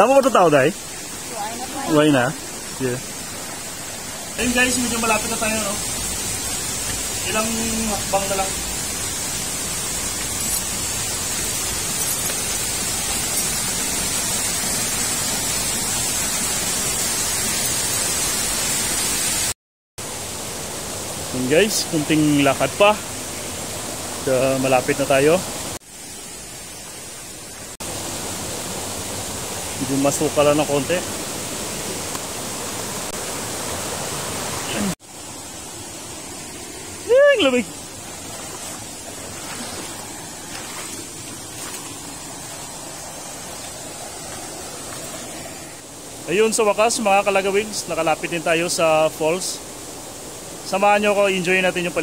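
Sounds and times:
waterfall rushing hiss: 0.0s - 52.0s
shallow water over pebbles: 37.9s - 42.7s.

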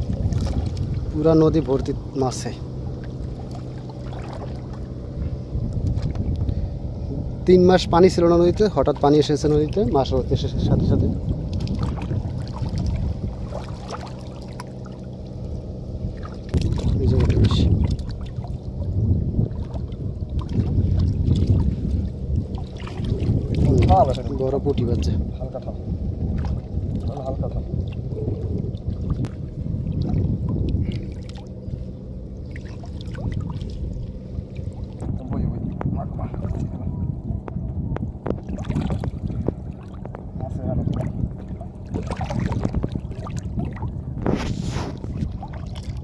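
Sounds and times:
water splashes and drips: 0.0s - 1.9s, 3.0s - 4.9s, 11.2s - 15.4s, 16.1s - 18.9s, 19.5s - 24.5s, 26.3s - 31.6s, 32.5s - 35.2s, 40.9s - 46.0s
low engine drone: 0.0s - 46.0s
steady low rumble: 0.0s - 46.0s.

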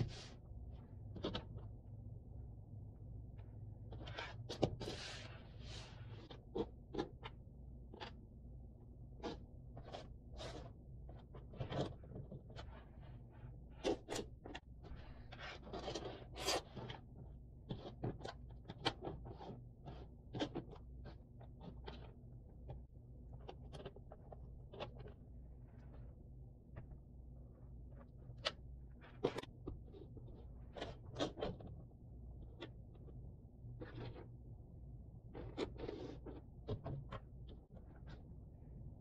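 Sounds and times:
faint steady hum: 0.0s - 39.0s
puzzle pieces clicking and scraping: 35.3s - 38.2s.

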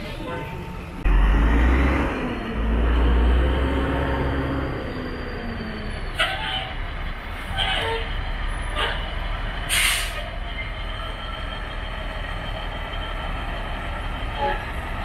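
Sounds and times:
diesel engines idling: 0.0s - 15.0s
air brake hisses: 9.7s - 10.3s.

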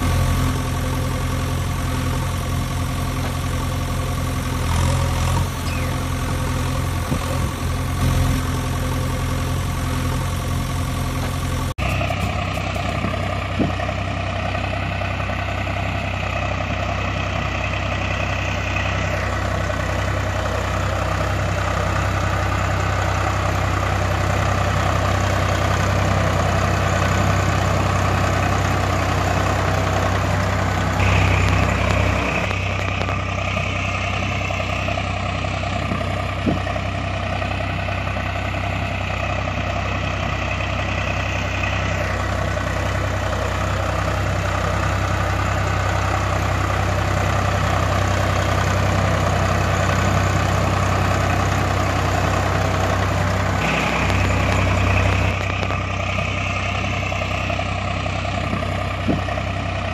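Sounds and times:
tractor engine idling: 0.0s - 59.9s.

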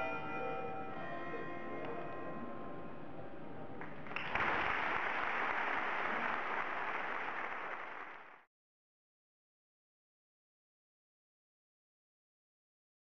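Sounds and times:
audience applause: 3.8s - 8.5s.

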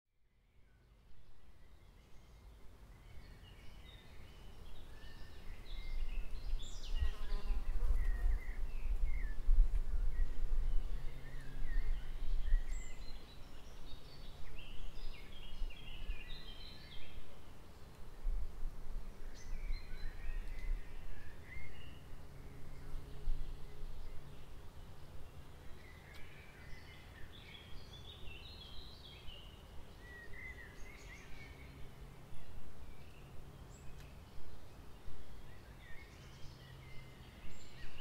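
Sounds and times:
birds chirping: 19.3s - 38.0s.

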